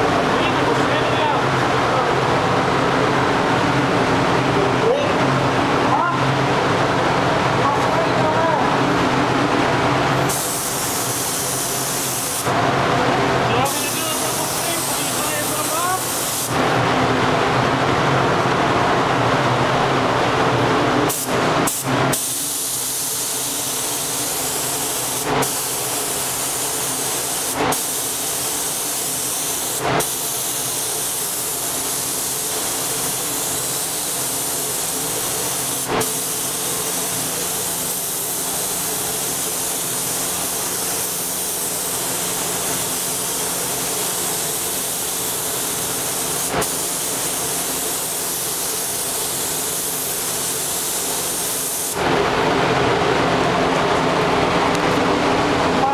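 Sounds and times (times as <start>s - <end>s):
paint spray gun hissing: 10.2s - 12.5s, 13.7s - 16.6s, 21.1s - 52.0s
short air puffs: 10.2s - 12.6s.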